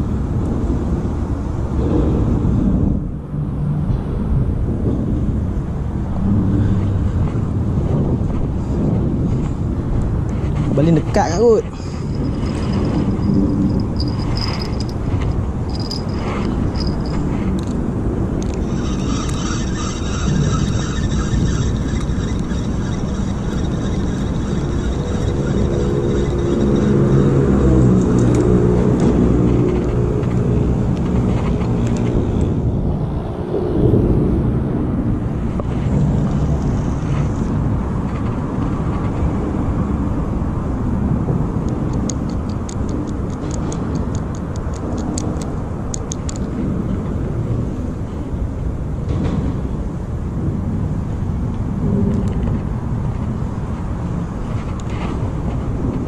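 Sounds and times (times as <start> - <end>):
engine rumble: 0.0 - 56.0
pitched engine drone: 9.7 - 37.6.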